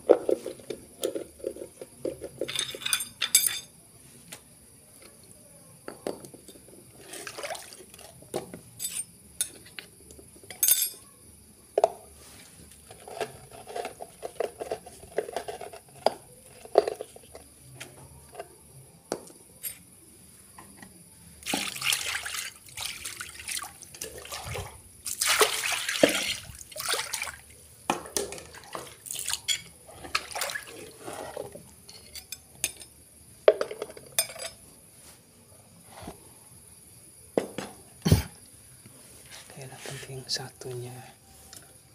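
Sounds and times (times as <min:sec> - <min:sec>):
spoon scraping a mortar: 0:12.9 - 0:17.4
liquid sloshing: 0:21.5 - 0:27.4.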